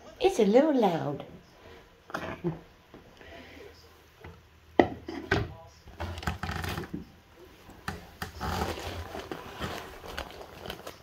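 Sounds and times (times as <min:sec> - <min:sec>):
scratchy rubbing: 0:08.2 - 0:11.0.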